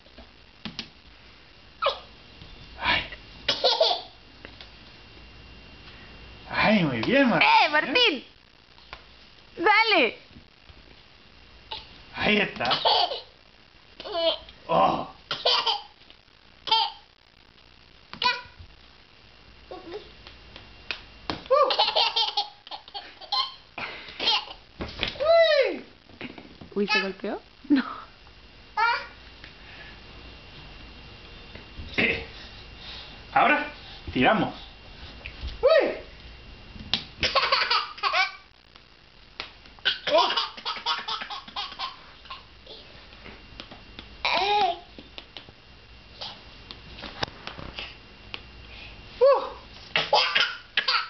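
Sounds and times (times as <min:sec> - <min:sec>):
toddler giggling: 0:12.7 - 0:13.3, 0:15.4 - 0:15.9, 0:21.5 - 0:23.6, 0:37.2 - 0:38.4, 0:39.9 - 0:42.9.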